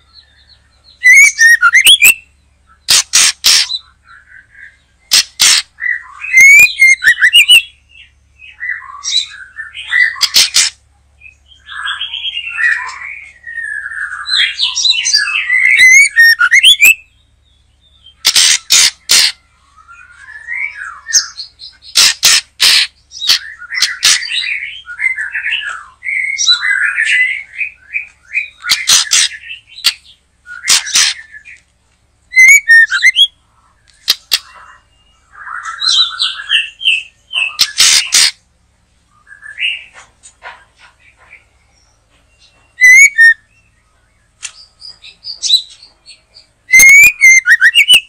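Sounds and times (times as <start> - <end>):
bird singing whistled phrases: 0.4 - 2.8, 5.8 - 10.5, 11.5 - 17.1, 32.3 - 33.3, 42.4 - 43.8, 46.7 - 48.0
bird harsh clicking notes: 1.0 - 2.2, 2.8 - 3.8, 5.1 - 5.7, 10.1 - 10.8, 18.2 - 19.4, 21.9 - 24.4, 28.0 - 31.6, 32.4 - 34.8, 37.4 - 38.4, 42.8 - 43.4.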